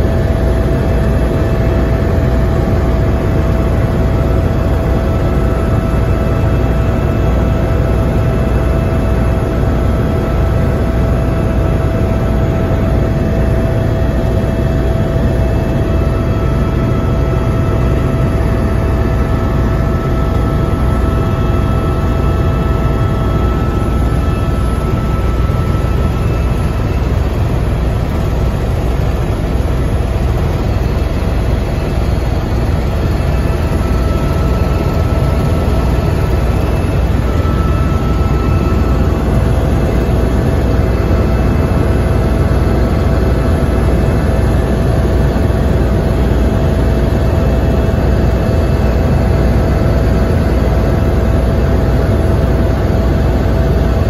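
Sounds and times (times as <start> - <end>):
high whine: 0.0 - 46.4
helicopter rotor and engine rumble: 0.0 - 54.0.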